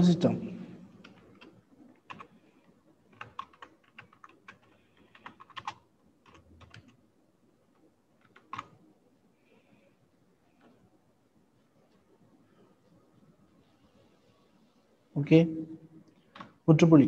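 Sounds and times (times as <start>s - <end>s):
computer keyboard typing: 1.0s - 2.4s, 3.1s - 7.0s, 7.7s - 8.8s, 16.3s - 16.6s.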